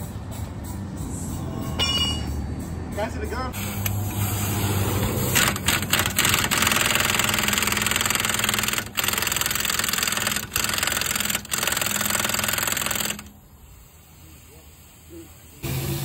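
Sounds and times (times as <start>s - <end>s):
pneumatic impact wrench: 3.6s - 14.3s, 14.9s - 16.0s.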